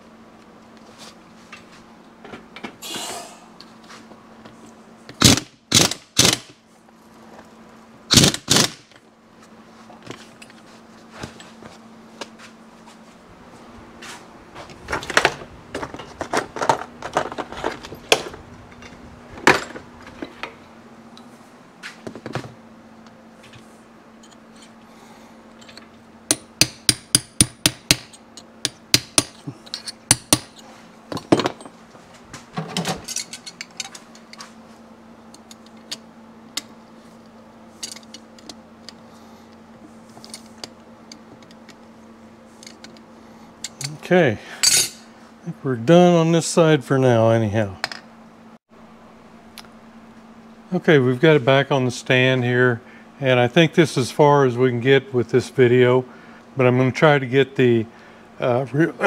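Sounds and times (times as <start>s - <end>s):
impact wrench bursts: 5.2s - 6.6s, 8.1s - 8.9s
tools clattering: 25.5s - 26.5s, 27.4s - 31.8s, 32.6s - 34.5s, 37.8s - 38.6s, 44.6s - 45.0s
hammer tapping a punch: 26.3s - 29.4s.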